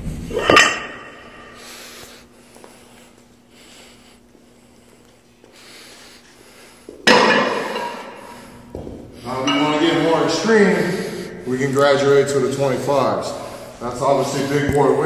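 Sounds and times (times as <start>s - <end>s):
faint steady hum: 0.0s - 15.0s
metal weight plates clanking: 9.3s - 10.4s.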